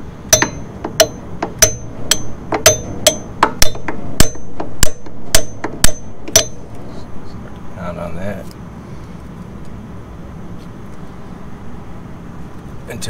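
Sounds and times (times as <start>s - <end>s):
hammer striking wrench with ring: 0.3s - 6.7s.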